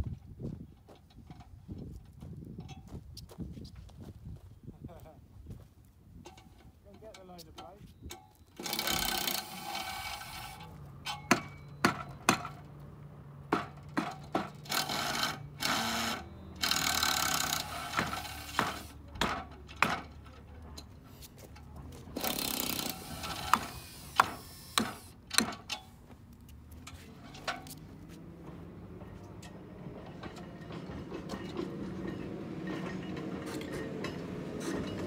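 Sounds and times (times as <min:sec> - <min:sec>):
tools knocking and clicking: 0:11.0 - 0:12.8, 0:22.2 - 0:25.9.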